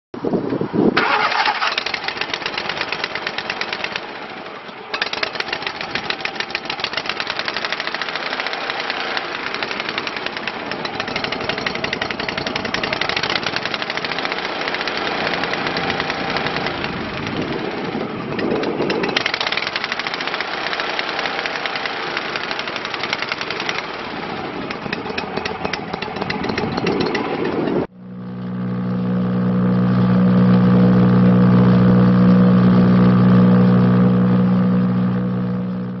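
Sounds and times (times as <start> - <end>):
gas engine running rattly: 1.0 - 27.9
wood chipper deep hum: 27.9 - 36.0.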